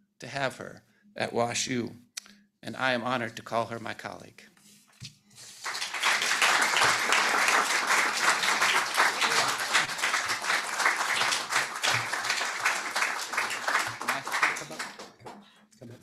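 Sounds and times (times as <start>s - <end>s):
audience applauding: 5.4s - 15.5s.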